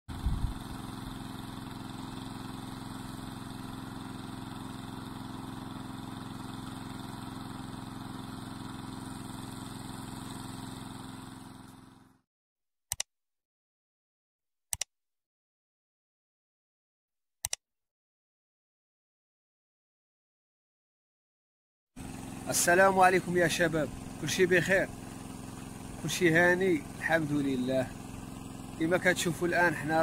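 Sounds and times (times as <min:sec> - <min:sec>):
small engine running: 0:00.1 - 0:12.2, 0:22.0 - 0:30.0.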